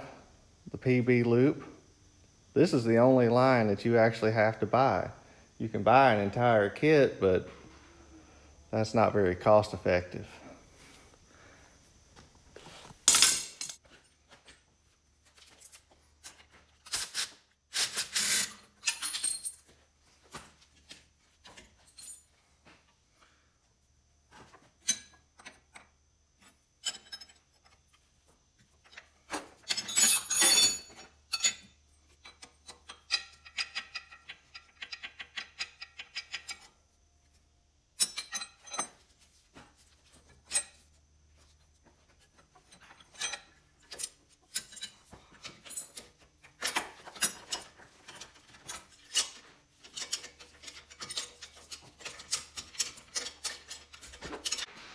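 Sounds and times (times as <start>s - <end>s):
wrenches clinking on metal fittings: 17.8s - 19.7s, 26.4s - 27.8s, 28.8s - 36.7s, 38.0s - 39.1s, 42.3s - 54.7s.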